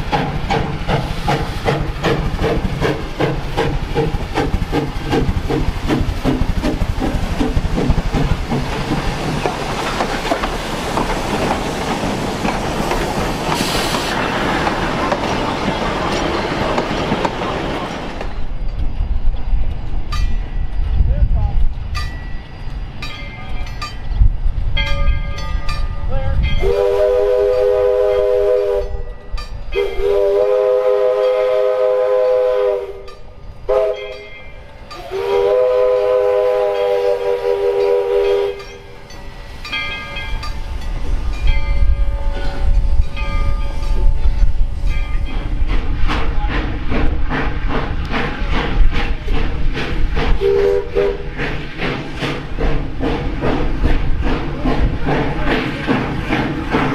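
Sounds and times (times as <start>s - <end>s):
train rumbling and clattering: 0.0s - 56.9s
steam whistle blasts: 26.6s - 34.3s, 35.0s - 38.7s, 50.4s - 51.4s.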